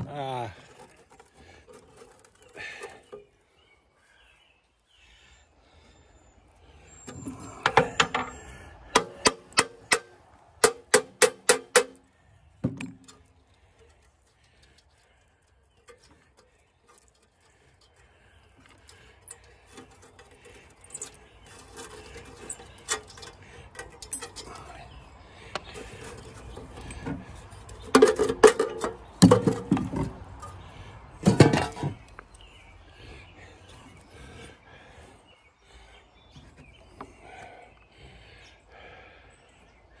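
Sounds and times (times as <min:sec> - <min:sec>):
loose metal rattling: 0:07.0 - 0:30.6, 0:31.2 - 0:32.2.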